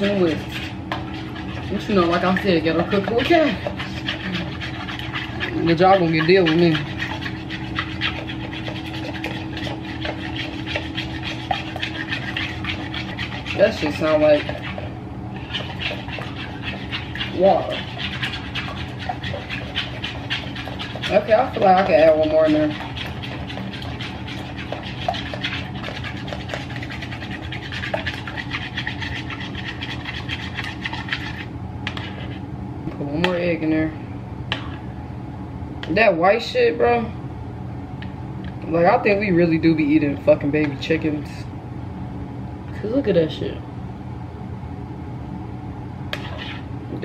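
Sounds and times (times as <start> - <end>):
whisk scraping and clicking in bowl: 0.0 - 32.4, 46.1 - 46.7
steady low hum: 0.0 - 47.0.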